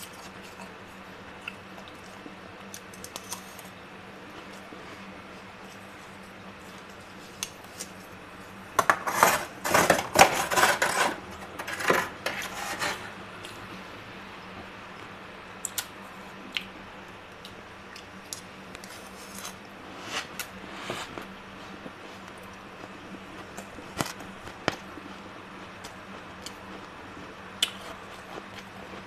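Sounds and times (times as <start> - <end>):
frost crunching and scraping: 8.8 - 13.2, 18.8 - 29.0.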